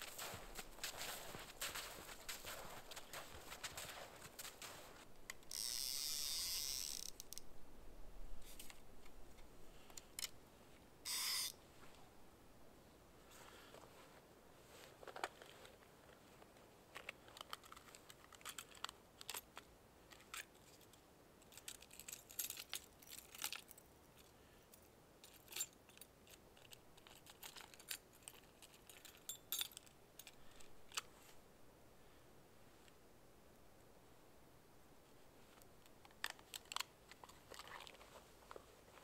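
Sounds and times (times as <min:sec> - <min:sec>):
hands fiddling with small gear: 0:00.0 - 0:07.5, 0:08.4 - 0:10.4, 0:11.1 - 0:11.6, 0:14.7 - 0:31.4, 0:35.4 - 0:39.0.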